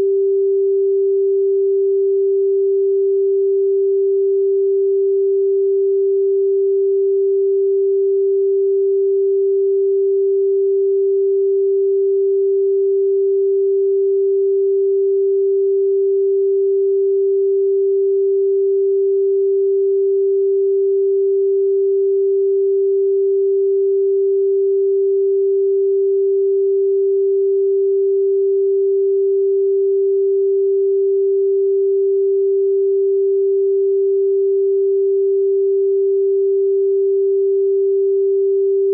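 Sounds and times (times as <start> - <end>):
steady sine tone: 0.0 - 38.9.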